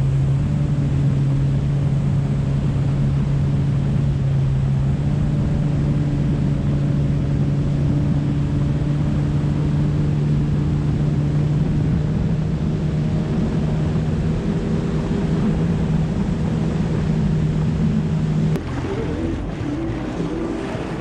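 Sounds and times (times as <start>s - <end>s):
jet ski engine droning: 0.0s - 21.0s
rushing water: 0.0s - 21.0s
wind: 0.0s - 21.0s.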